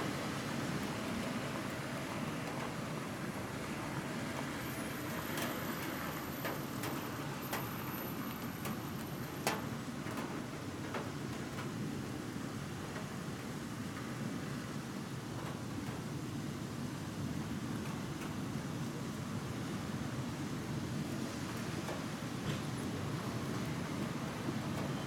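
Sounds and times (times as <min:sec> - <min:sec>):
distant city traffic: 0:00.0 - 0:10.6
rain: 0:00.0 - 0:25.0.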